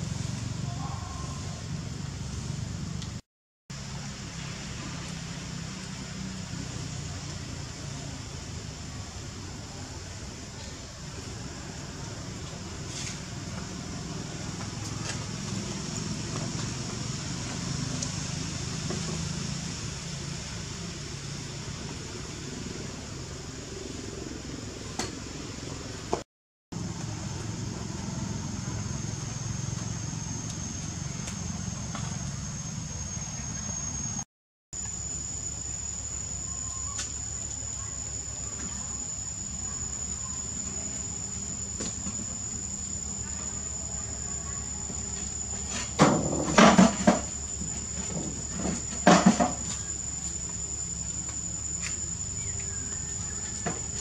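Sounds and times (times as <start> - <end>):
high-pitched insect drone: 26.8 - 34.2, 34.8 - 54.0.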